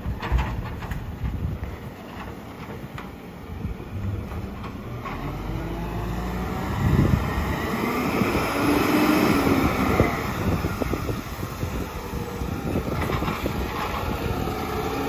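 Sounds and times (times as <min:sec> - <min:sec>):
garbage truck diesel engine: 0:00.0 - 0:15.0.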